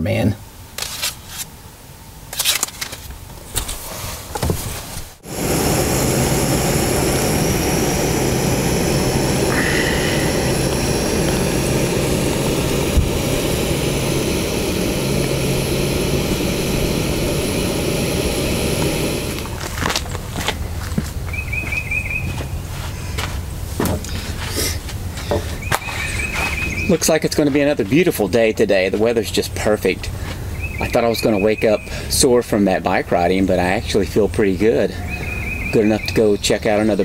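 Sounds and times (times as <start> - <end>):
gas stove hissing: 2.4 - 21.3.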